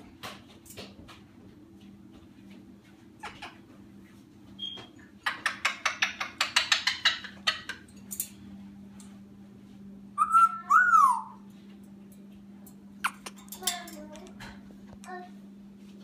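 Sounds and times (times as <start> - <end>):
parrot clicking: 5.2 - 7.8
parrot whistle rising and falling: 10.2 - 11.4.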